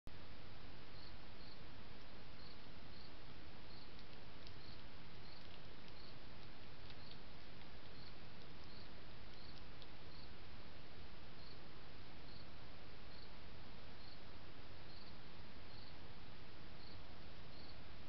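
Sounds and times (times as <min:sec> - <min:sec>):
microphone hiss: 0:00.1 - 0:18.0
cricket chirping: 0:00.9 - 0:06.2, 0:06.8 - 0:10.4, 0:11.4 - 0:13.4, 0:14.0 - 0:16.0, 0:16.8 - 0:17.8
faint ticks: 0:03.7 - 0:10.3.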